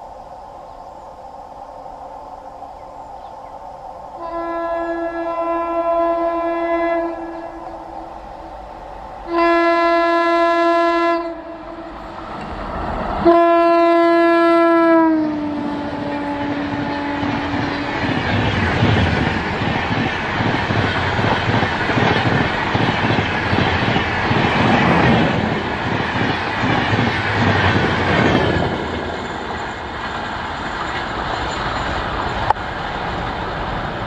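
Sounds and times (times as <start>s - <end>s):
locomotive horn blasts: 4.2s - 7.8s, 9.3s - 12.0s, 13.2s - 18.0s
train coaches clattering on rails: 15.8s - 34.0s.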